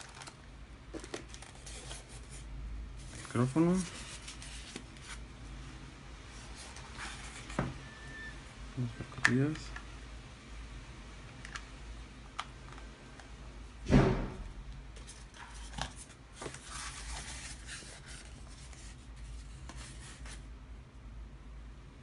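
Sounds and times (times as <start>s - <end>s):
loud knock: 13.9s - 14.5s.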